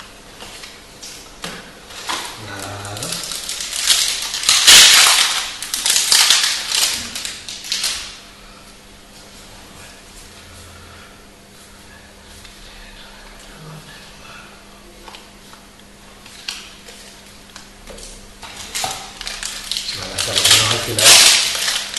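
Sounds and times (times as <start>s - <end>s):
foil wrapper crinkling and tearing: 1.9s - 8.2s, 16.2s - 21.9s.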